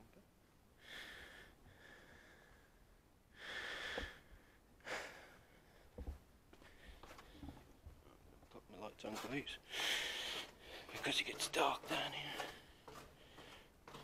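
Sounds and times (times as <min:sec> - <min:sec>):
person breathing hard: 0:00.8 - 0:06.0, 0:09.6 - 0:10.9, 0:12.2 - 0:14.0.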